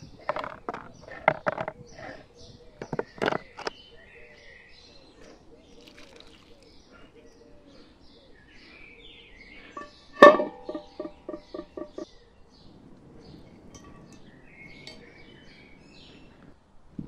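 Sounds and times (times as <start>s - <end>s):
small birds chirping: 0.0s - 16.7s
metal pot clanking on stones: 0.2s - 1.8s, 9.8s - 12.0s, 13.7s - 14.2s.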